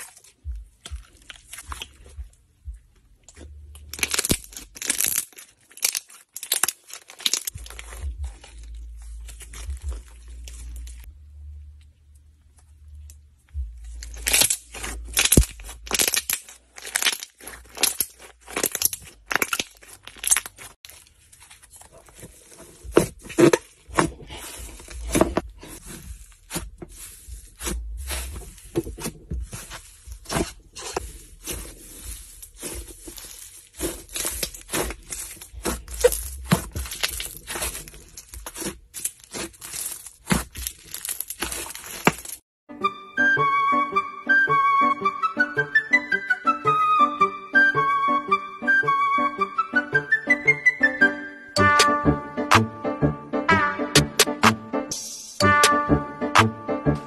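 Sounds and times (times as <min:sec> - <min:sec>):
slime squishing and popping: 0:00.0 - 0:02.2, 0:03.3 - 0:11.1, 0:13.8 - 0:21.0, 0:22.2 - 0:42.4.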